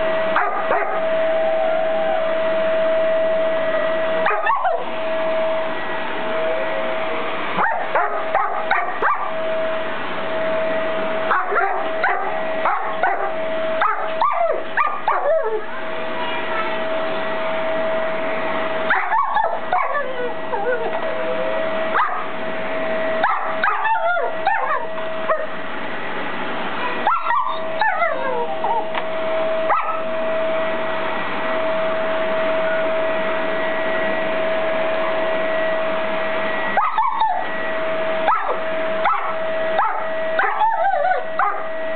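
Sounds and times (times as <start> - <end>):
vacuum cleaner humming: 0.0 - 41.9
dog barking and whimpering: 0.4 - 1.0, 4.2 - 4.9, 7.6 - 9.3, 11.3 - 15.7, 18.9 - 22.3, 23.2 - 25.6, 27.0 - 29.0, 29.7 - 30.0, 36.8 - 37.4, 38.3 - 41.7.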